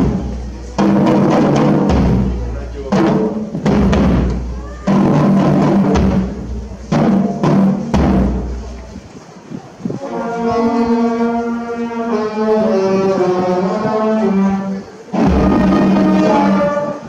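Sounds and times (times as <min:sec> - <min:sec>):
bass drum strikes: 0:00.0 - 0:08.8
slow brass melody: 0:10.0 - 0:17.0.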